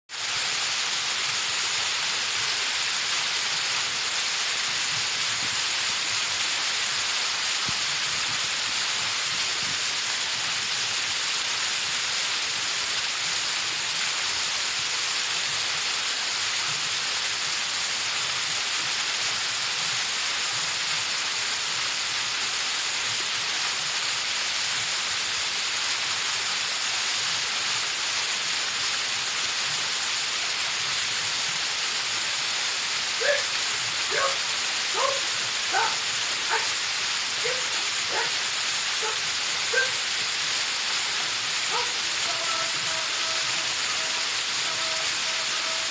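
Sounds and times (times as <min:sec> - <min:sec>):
waterfall pouring onto rocks: 0:00.1 - 0:45.9.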